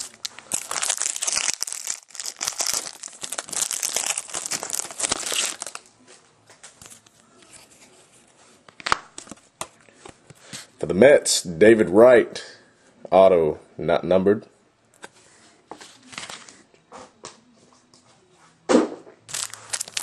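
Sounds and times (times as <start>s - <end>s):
foil wrapper crinkling: 0.0s - 5.9s, 19.3s - 20.0s.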